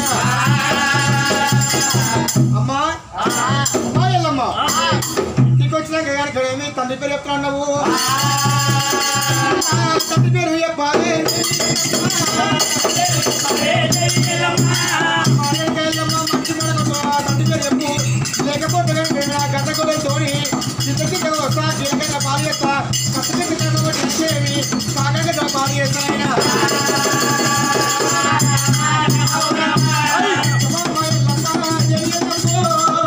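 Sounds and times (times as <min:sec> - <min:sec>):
steady drum beat: 0:00.0 - 0:05.7, 0:07.8 - 0:33.0
jingling metal percussion: 0:00.0 - 0:06.1, 0:07.8 - 0:33.0
person singing: 0:07.8 - 0:10.2, 0:26.1 - 0:30.9.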